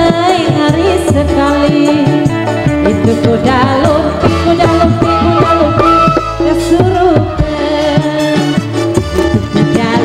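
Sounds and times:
ornamented melodic lead: 0.0 - 10.0
steady drum beat: 0.0 - 10.0.

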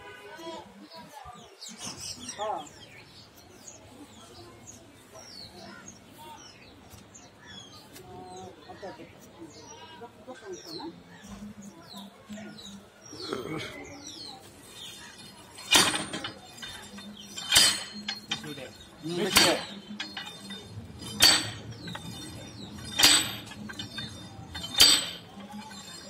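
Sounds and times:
drop hammer metallic clanks: 15.6 - 26.0.

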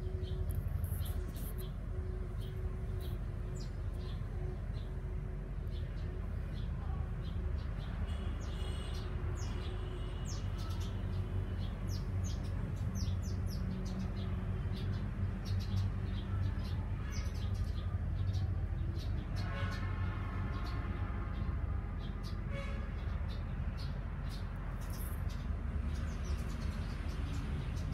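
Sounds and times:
birds chirping: 21.4 - 27.9.

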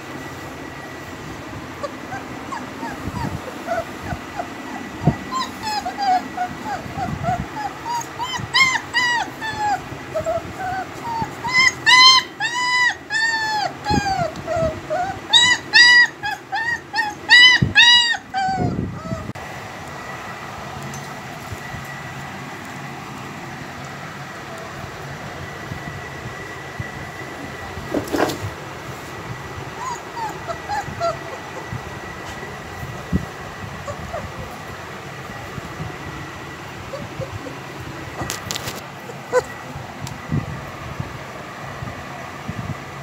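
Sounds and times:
puppies whimpering and yipping: 0.7 - 19.4, 29.2 - 40.3.

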